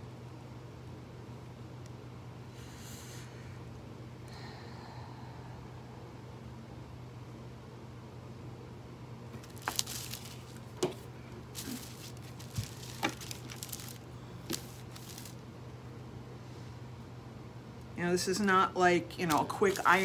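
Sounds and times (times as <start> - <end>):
metallic foil crinkling: 9.4 - 15.4, 19.1 - 20.0.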